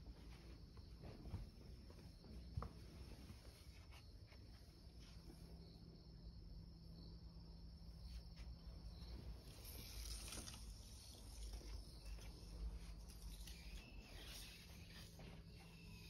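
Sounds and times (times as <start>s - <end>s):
soft rustles and taps: 0.0s - 5.5s
high insect trill: 3.4s - 16.0s.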